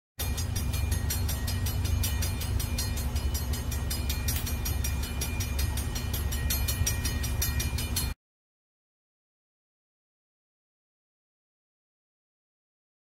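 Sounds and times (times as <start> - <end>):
locomotive engine rumble: 0.2 - 8.1
quick even ticking: 0.2 - 8.2.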